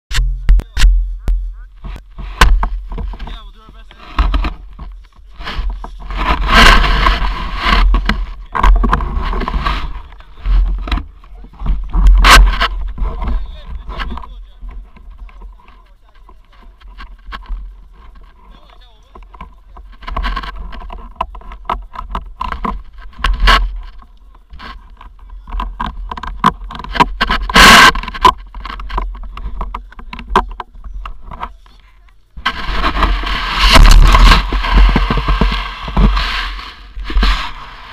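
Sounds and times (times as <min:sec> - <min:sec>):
wind rumble on microphone: 0:00.1 - 0:18.5, 0:32.3 - 0:37.9
scraping and crunching on snow: 0:00.7 - 0:37.9
wind buffeting microphone: 0:32.4 - 0:37.9.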